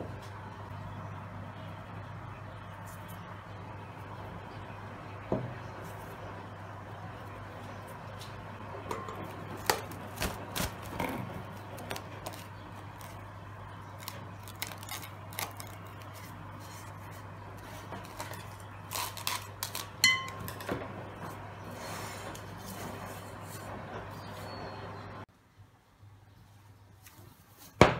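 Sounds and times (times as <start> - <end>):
cling film crinkling: 9.3 - 20.7.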